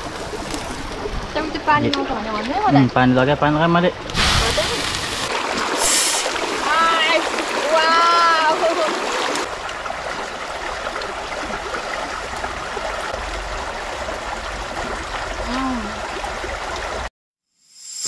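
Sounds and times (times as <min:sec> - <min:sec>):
stream rushing over rocks: 0:04.2 - 0:17.1.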